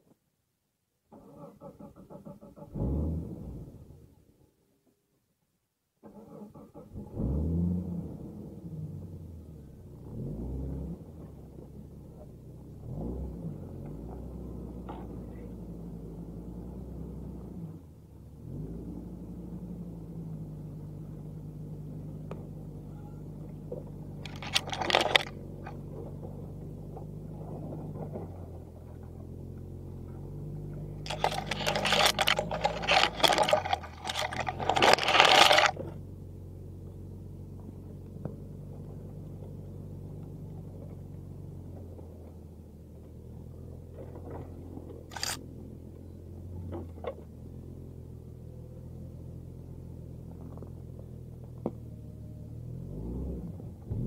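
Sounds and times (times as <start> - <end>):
car engine running: 11.0 - 54.0
clattering and scraping: 23.7 - 29.2, 30.7 - 36.0, 44.0 - 45.4.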